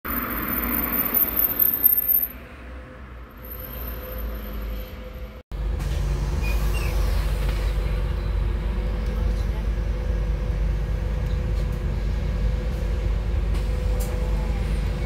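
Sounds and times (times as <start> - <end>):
road noise: 0.0 - 15.0
bus engine rumble: 0.1 - 15.0.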